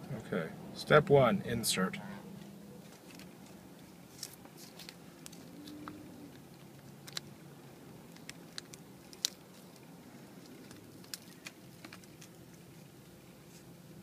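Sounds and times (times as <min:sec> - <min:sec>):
low steady hum: 0:00.0 - 0:14.0
small clicks and crinkles: 0:02.8 - 0:07.4, 0:08.0 - 0:13.7.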